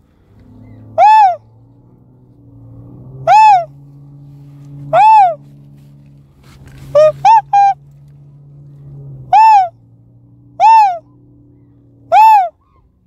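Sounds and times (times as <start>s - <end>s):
swan call hooting: 0.5s - 1.5s, 3.1s - 4.0s, 4.6s - 5.6s, 6.7s - 8.1s, 9.0s - 9.8s, 10.5s - 13.0s.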